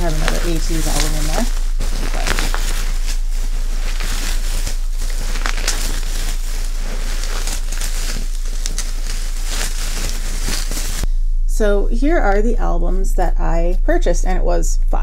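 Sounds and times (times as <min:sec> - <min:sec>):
bubble wrap crackling: 0:00.0 - 0:11.1.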